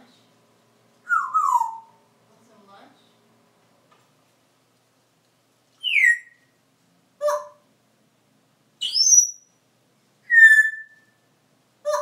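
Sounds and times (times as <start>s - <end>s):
parrot whistling and calling: 1.0s - 2.0s, 5.8s - 6.6s, 7.2s - 7.6s, 8.8s - 9.5s, 10.2s - 12.0s.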